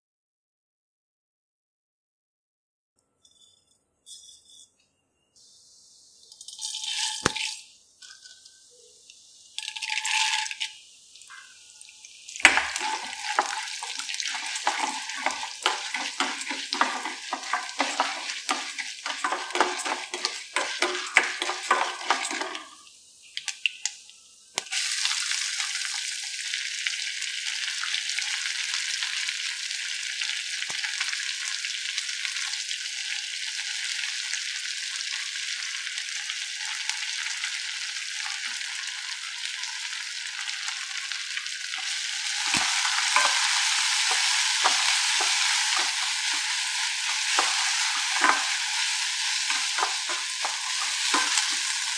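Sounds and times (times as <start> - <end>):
spoon scraping a metal pan: 3.2 - 4.9, 6.3 - 8.7, 9.6 - 11.5, 12.4 - 22.8, 41.8 - 51.9
food sizzling in oil: 5.2 - 51.9.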